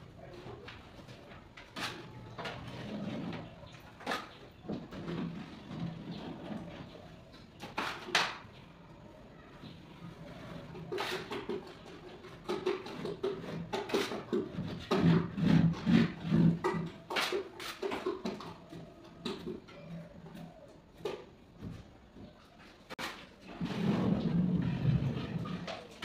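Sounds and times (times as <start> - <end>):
hand scraping gypsum board: 10.8 - 18.4.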